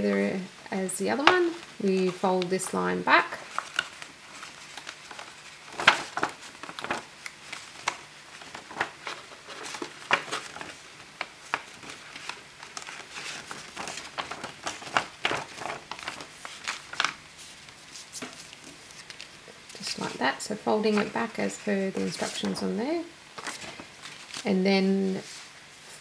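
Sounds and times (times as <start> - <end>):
paper rustling and crinkling: 1.1 - 26.0
crisp ticks and scrapes: 3.4 - 20.2.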